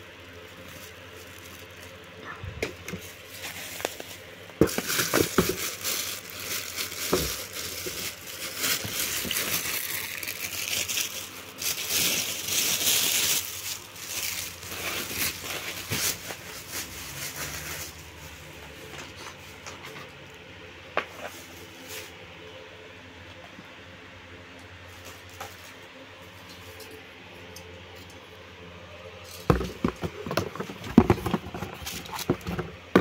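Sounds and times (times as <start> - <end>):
plastic wrap crinkling: 0.0 - 19.8, 29.4 - 33.0.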